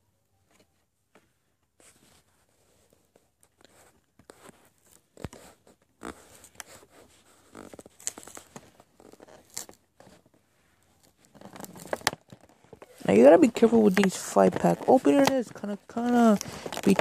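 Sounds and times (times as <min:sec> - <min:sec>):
plastic packaging crinkling: 0:11.0 - 0:17.0.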